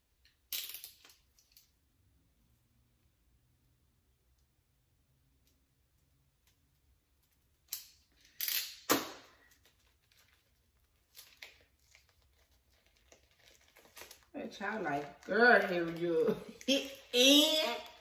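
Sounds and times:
paper wrapping tearing and rustling: 8.3s - 18.0s.

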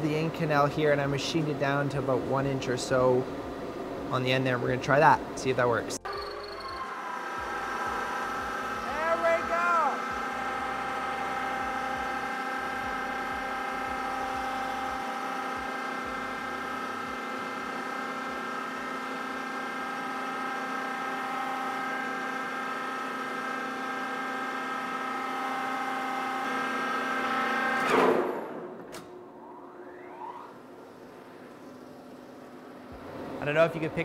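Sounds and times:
lathe whining with rubbing metal: 6.0s - 19.0s, 29.6s - 30.6s.

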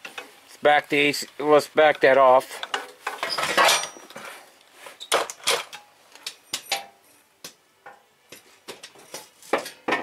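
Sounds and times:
metal tools clinking: 2.6s - 4.2s.

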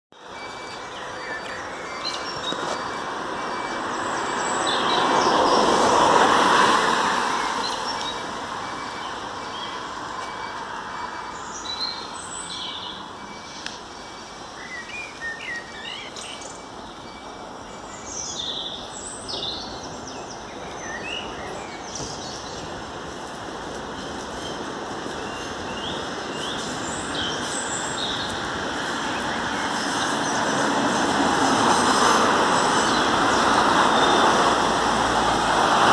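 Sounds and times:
passing traffic: 0.1s - 35.9s
small birds chirping: 0.2s - 5.7s, 11.4s - 22.9s, 23.8s - 31.2s.

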